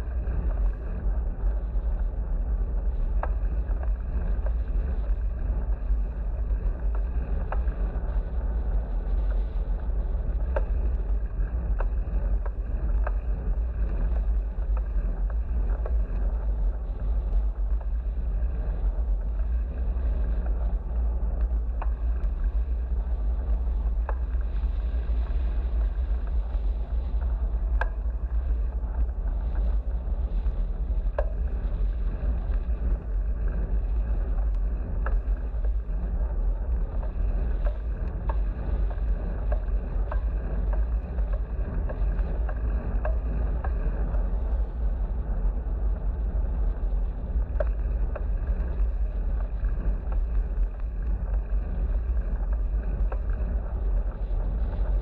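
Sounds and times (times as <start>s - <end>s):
bicycle tyre and road noise: 0.0s - 55.0s
wind buffeting microphone: 0.0s - 55.0s
light ticks: 3.1s - 55.0s.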